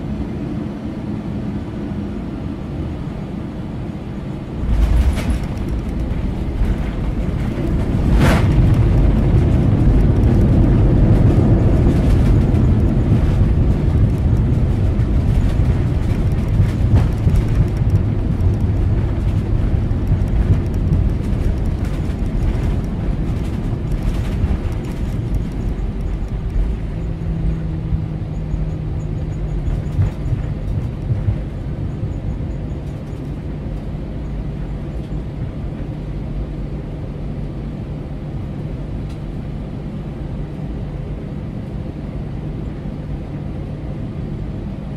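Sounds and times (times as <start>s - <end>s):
engine and wheel rumble: 0.0s - 44.9s
steady engine hum: 0.0s - 44.9s.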